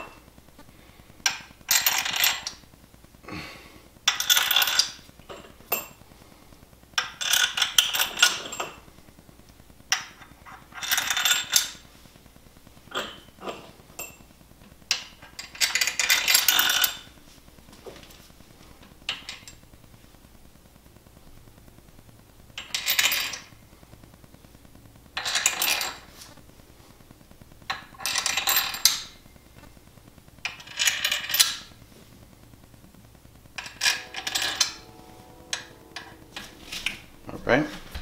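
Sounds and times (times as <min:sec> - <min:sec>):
metallic ring: 0:33.6 - 0:38.0.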